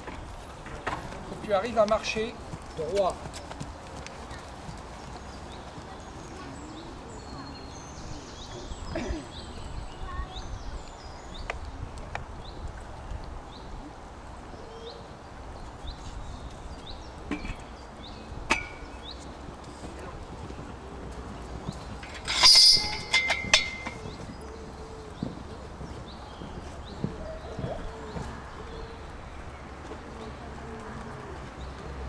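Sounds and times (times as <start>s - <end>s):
low wind rumble: 0.0s - 32.0s
small birds chirping: 0.5s - 32.0s
horse hoofbeats on sand: 1.1s - 6.4s, 23.6s - 29.0s.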